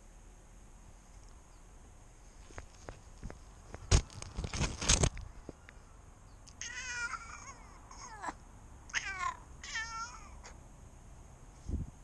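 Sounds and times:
close scuffing and crackling: 2.3s - 5.6s.

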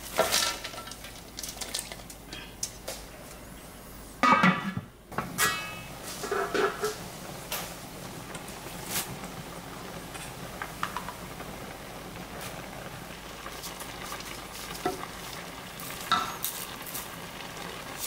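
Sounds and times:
bean sprouts dropped into wok: 0.1s - 3.0s
wok lid clanking: 4.2s - 7.0s.

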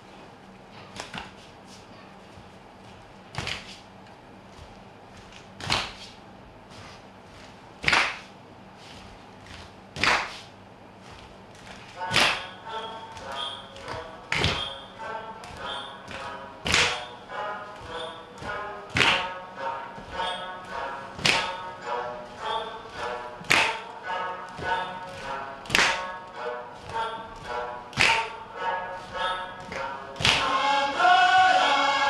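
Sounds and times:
sharp percussive slaps: 7.8s - 8.3s, 10.0s - 10.5s, 12.1s - 12.6s, 13.9s - 14.9s, 15.5s - 17.2s, 18.9s - 19.4s, 21.2s - 21.7s, 23.4s - 23.9s, 25.7s - 26.1s, 27.9s - 28.4s, 29.7s - 30.5s
voices singing held notes: 29.8s - 32.0s.

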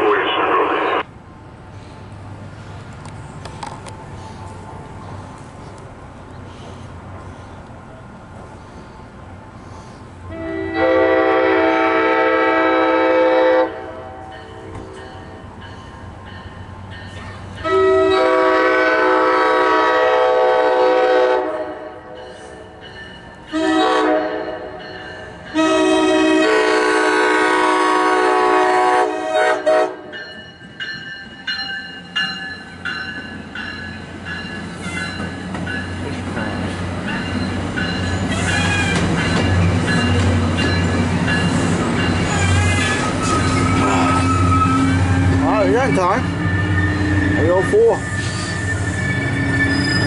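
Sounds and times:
train rumbling past: 0.0s - 50.0s
train horn blasts: 10.3s - 15.0s, 17.6s - 22.2s, 23.5s - 24.8s, 25.5s - 30.1s.

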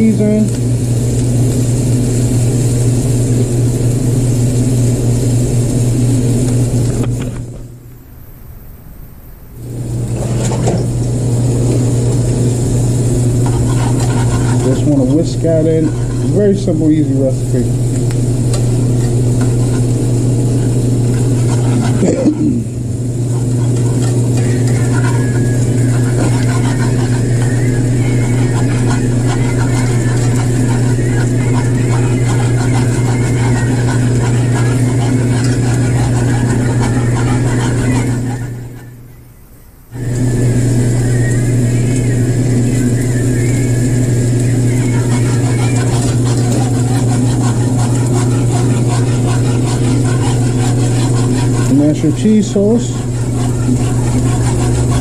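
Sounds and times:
low machine hum: 0.0s - 55.0s
whisk scraping a pan: 10.2s - 39.0s, 40.0s - 55.0s.

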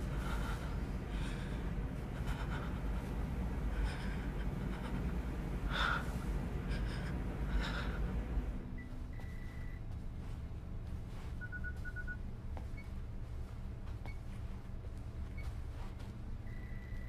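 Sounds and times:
woman gasping breaths: 0.0s - 8.5s
low steady rumble: 0.0s - 17.0s.

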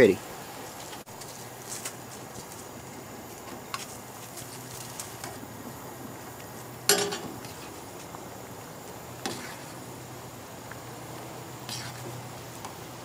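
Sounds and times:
stew boiling: 0.0s - 13.0s
gas stove hissing: 2.7s - 13.0s
spoon clinking in pot: 6.9s - 7.3s
metal pot lid clanking: 6.9s - 7.4s.

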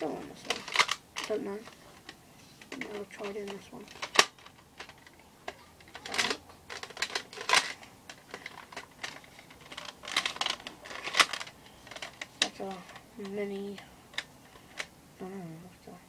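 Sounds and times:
plastic rattling scrapes: 0.3s - 14.9s
plastic toy clicks: 0.4s - 1.8s, 2.7s - 5.1s, 5.8s - 13.0s.

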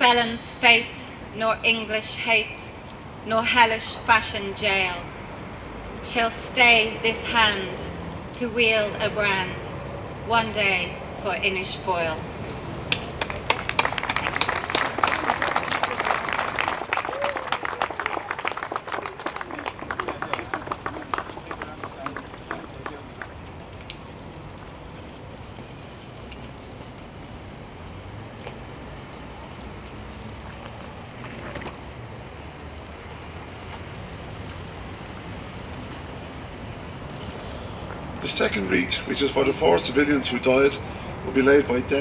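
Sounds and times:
low traffic rumble: 0.0s - 42.0s
audience applauding: 12.9s - 23.8s.

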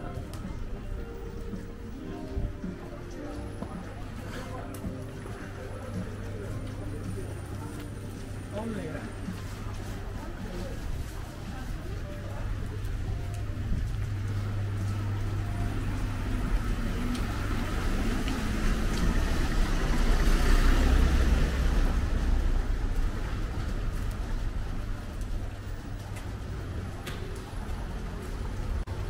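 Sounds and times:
vehicle engine passing: 14.8s - 23.6s.

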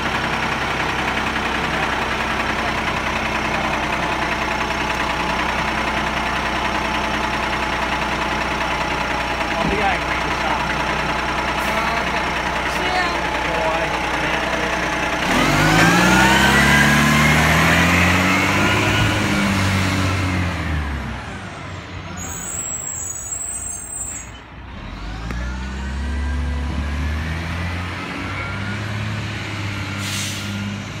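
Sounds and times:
garbage truck diesel engine: 0.0s - 31.0s.

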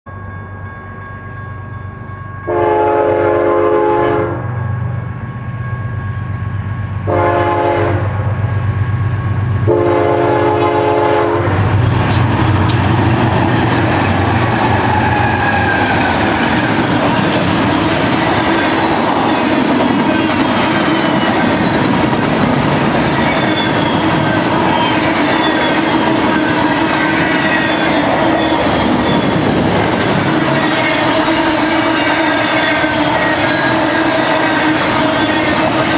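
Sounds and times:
locomotive engines rumbling: 0.1s - 35.9s
locomotive air horn blasts: 2.5s - 4.6s, 7.0s - 8.2s, 9.6s - 11.7s, 25.0s - 28.7s, 30.4s - 35.9s
train wheels clattering on rails: 11.6s - 35.9s.

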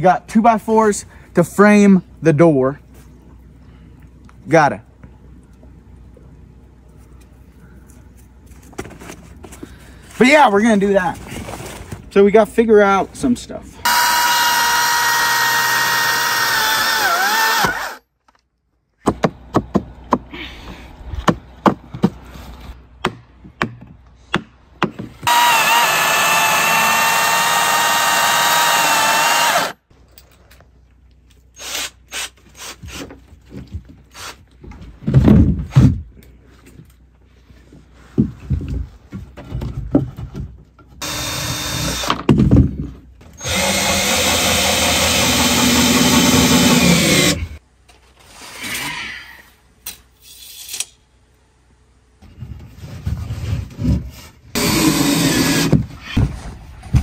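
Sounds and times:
power tool motor whining: 13.8s - 18.0s, 25.2s - 29.8s, 41.0s - 42.1s, 43.4s - 47.6s, 54.6s - 55.7s.

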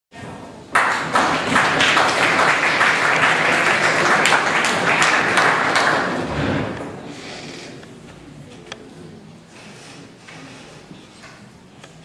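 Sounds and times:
audience applauding: 0.7s - 6.8s.

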